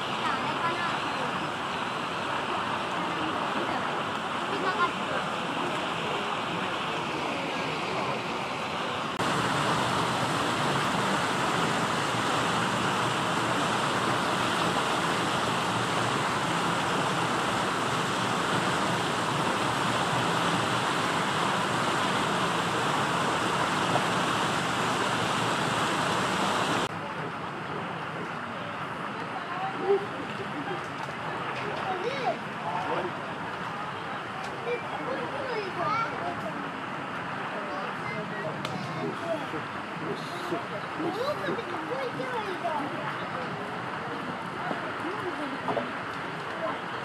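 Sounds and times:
outdoor rushing noise: 0:03.0 - 0:27.1.

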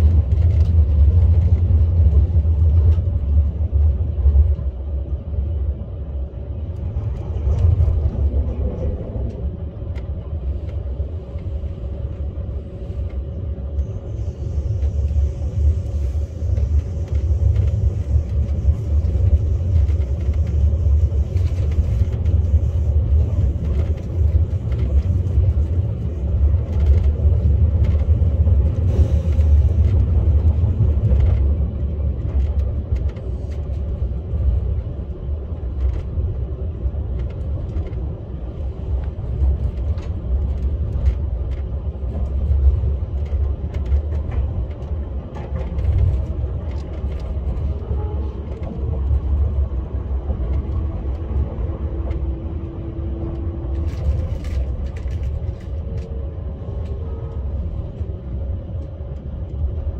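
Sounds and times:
train running with low rumble: 0:00.0 - 0:59.9.

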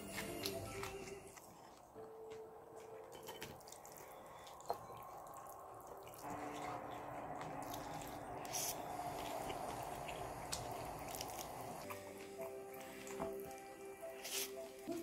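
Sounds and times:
wet squishy noodle sounds: 0:03.2 - 0:15.0.

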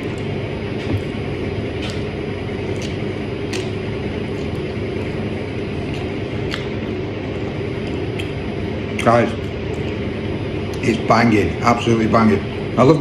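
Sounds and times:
person chewing bread: 0:00.0 - 0:10.1
mechanical hum: 0:00.0 - 0:13.0.

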